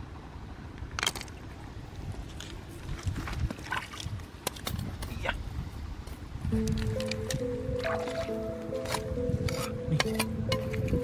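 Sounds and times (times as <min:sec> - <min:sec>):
steady low rumble: 0:01.4 - 0:11.0
water splashing and dripping: 0:07.8 - 0:09.0.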